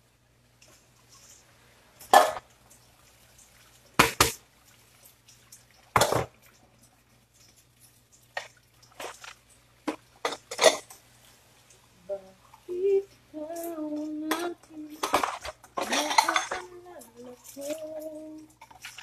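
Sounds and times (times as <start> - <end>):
faint steady hum: 0.0 - 19.0
dishes clattering: 2.0 - 2.4, 5.9 - 6.4, 9.9 - 11.0, 14.3 - 17.2.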